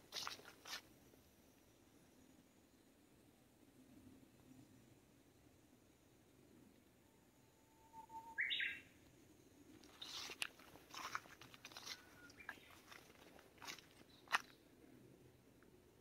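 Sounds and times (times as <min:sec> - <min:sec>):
footsteps crunching through leaves: 0:00.0 - 0:00.8, 0:09.8 - 0:14.6
bird singing whistled song: 0:07.5 - 0:08.9.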